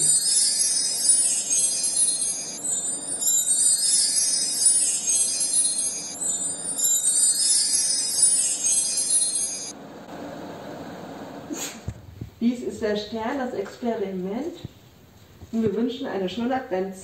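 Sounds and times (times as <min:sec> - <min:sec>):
jingle bells and chimes tinkling: 0:00.0 - 0:09.8.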